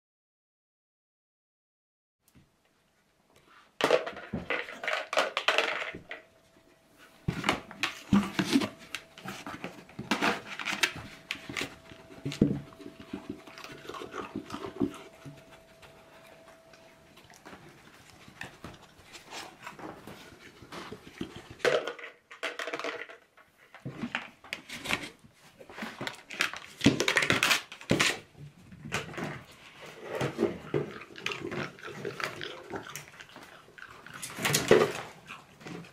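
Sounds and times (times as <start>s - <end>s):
faint steady hum: 2.3s - 21.8s
dogs sniffing and panting: 6.5s - 21.6s
plastic bucket knocking and scraping: 7.2s - 15.4s.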